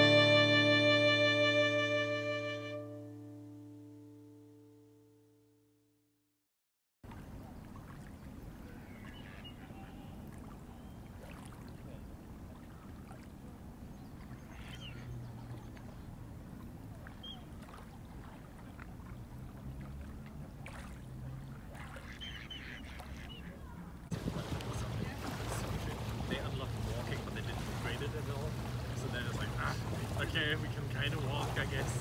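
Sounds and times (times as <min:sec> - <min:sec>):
small waves lapping: 0:07.0 - 0:32.0
faint bird calls: 0:08.6 - 0:11.2, 0:13.9 - 0:16.2, 0:17.1 - 0:17.6, 0:21.5 - 0:23.9.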